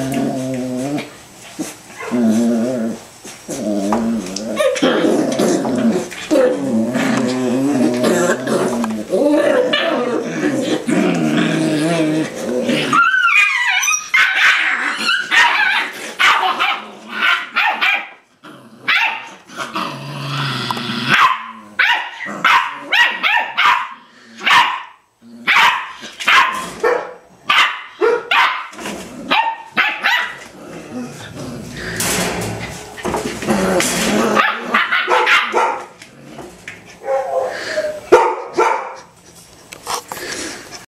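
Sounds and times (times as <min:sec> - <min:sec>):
puppies growling: 0:00.0 - 0:23.2, 0:23.9 - 0:26.8, 0:28.7 - 0:38.1, 0:39.0 - 0:40.9
puppies barking and yipping: 0:12.9 - 0:18.2, 0:32.0 - 0:35.9.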